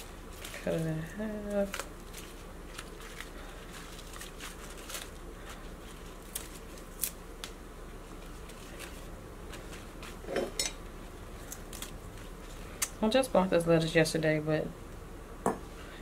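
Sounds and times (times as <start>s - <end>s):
lettuce leaves crackling: 0.0s - 10.3s, 11.0s - 14.0s.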